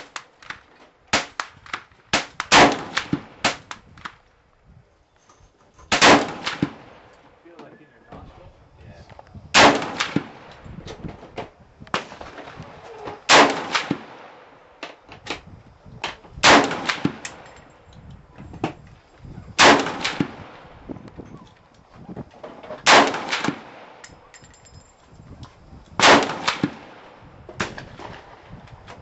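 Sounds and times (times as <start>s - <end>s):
rifle shots with echo: 1.1s - 3.8s, 5.9s - 7.1s, 9.6s - 10.5s, 13.3s - 14.6s, 16.4s - 17.5s, 19.6s - 20.8s, 22.8s - 24.0s, 26.0s - 28.4s.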